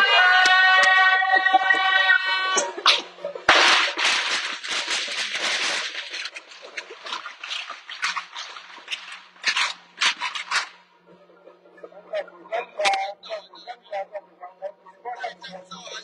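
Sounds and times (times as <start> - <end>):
firecrackers crackling and banging: 2.5 - 10.8.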